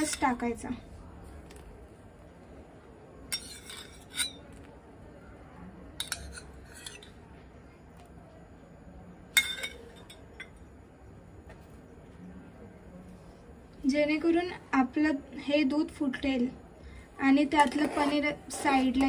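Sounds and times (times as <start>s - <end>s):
metal spoon clinking on glass bowl: 3.3s - 4.5s, 6.0s - 7.1s, 9.4s - 10.6s.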